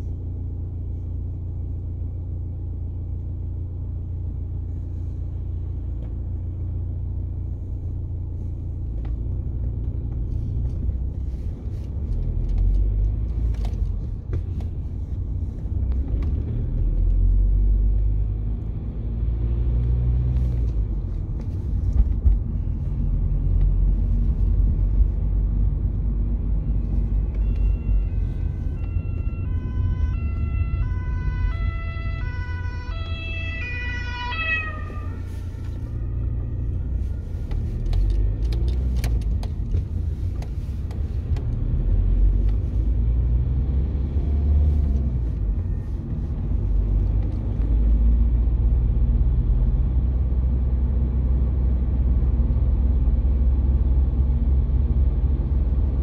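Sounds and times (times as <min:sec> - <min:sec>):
car cabin road rumble: 0:00.0 - 0:56.0
two-tone ambulance siren: 0:26.6 - 0:37.9.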